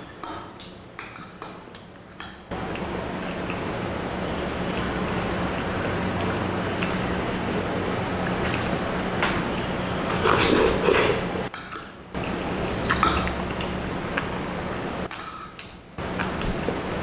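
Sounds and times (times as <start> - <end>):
wet chewing of noodles: 2.5 - 14.5
steady low hum: 2.5 - 17.0.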